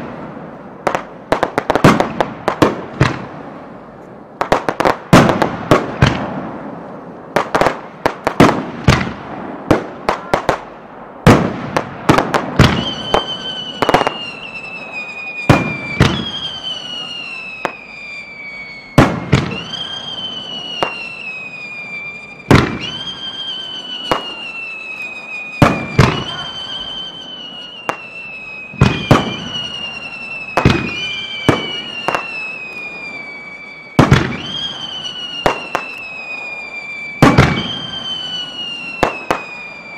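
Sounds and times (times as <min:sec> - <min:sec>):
fireworks bangs: 0:00.0 - 0:39.9
shrill whistle sliding down: 0:12.8 - 0:39.9.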